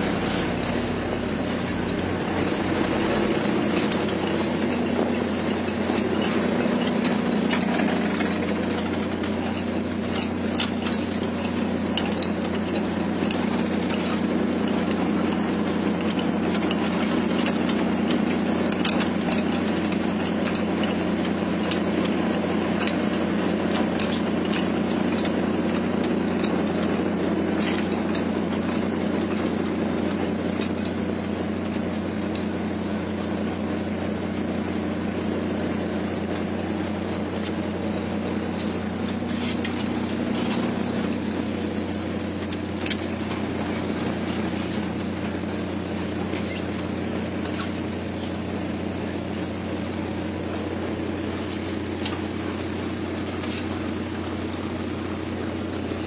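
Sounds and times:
jigging machines clicking and rattling: 0.0 - 34.0, 35.6 - 56.0
boat engine drone: 0.0 - 56.0.

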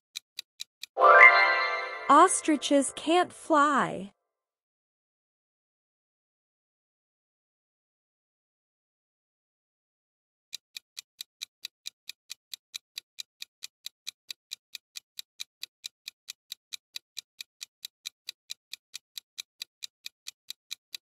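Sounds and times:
rapid clock ticks: 0.1 - 1.0, 10.5 - 21.0.

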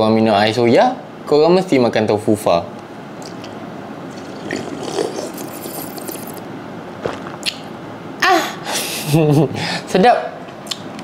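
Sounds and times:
sipping and swallowing: 3.2 - 7.7.

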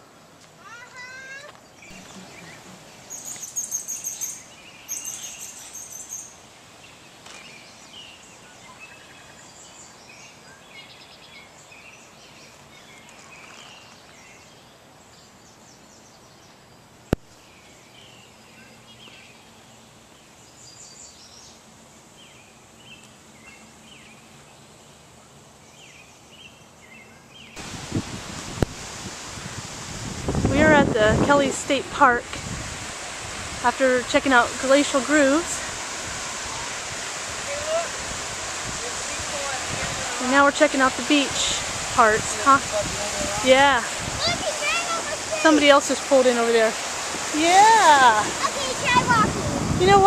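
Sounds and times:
birds chirping: 0.9 - 21.6
high rapid bird trills: 1.9 - 6.4
wind on microphone: 27.6 - 45.5, 46.7 - 50.0.

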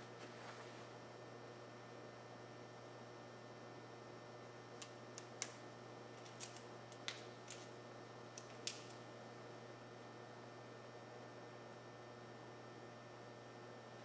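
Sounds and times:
faint steady hum and hiss: 0.0 - 14.0
stencil film peeling crackles: 4.8 - 9.0.

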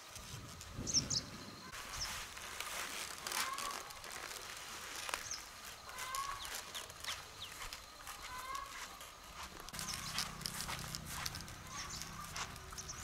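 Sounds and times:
footsteps through grass: 1.7 - 13.0
bird chirps: 9.8 - 10.6, 11.2 - 13.0.

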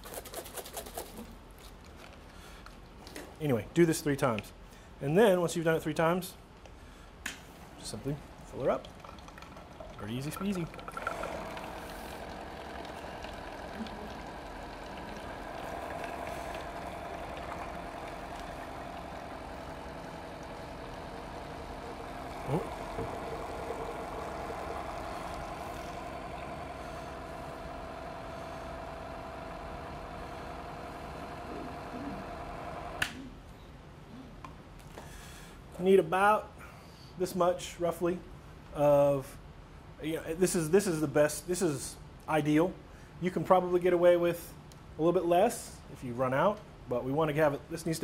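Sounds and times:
electric pump running: 8.5 - 33.2.

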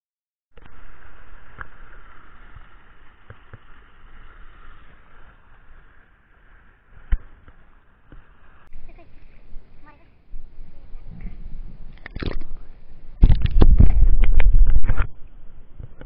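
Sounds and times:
river water running over stones: 0.6 - 8.6.

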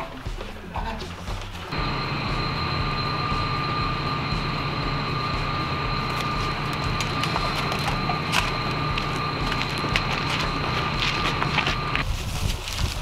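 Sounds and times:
thin high steady whines: 1.7 - 12.0
low mechanical hum: 1.7 - 12.2.

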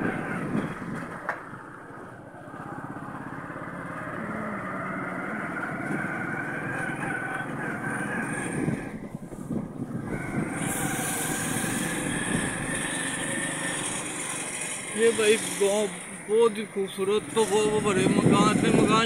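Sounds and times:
small motorcycle engine running: 0.0 - 19.0.

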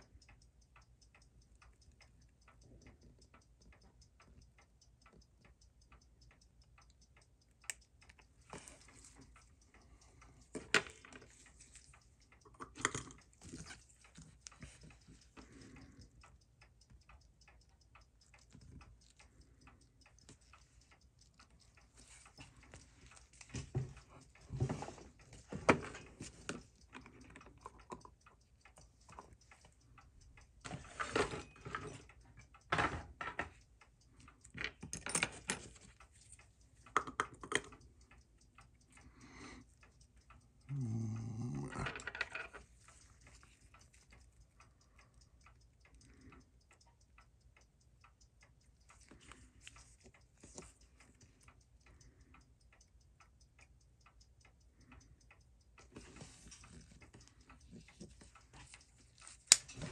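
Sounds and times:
tweezers clicking: 0.0 - 24.4, 33.5 - 59.9
mechanical watch ticking: 0.0 - 59.9.

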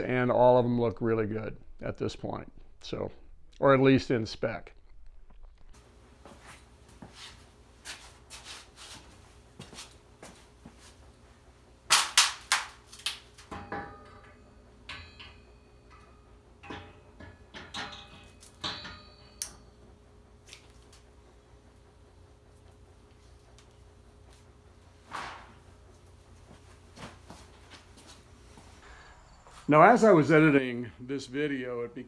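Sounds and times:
metal knocks and clinks: 13.5 - 19.7.

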